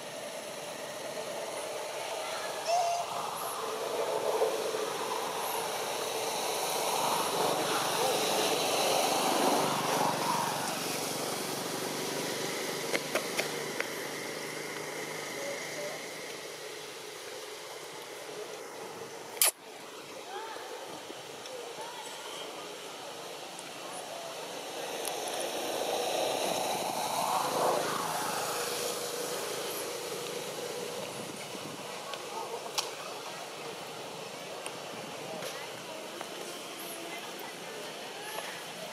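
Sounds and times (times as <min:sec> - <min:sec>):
distant engine passing by: 0:00.1 - 0:17.6, 0:24.0 - 0:34.4
small engine running: 0:23.9 - 0:34.4.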